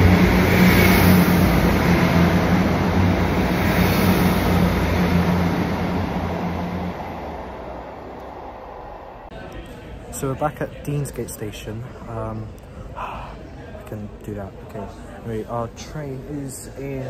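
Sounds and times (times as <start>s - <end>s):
tram running: 0.0s - 10.0s.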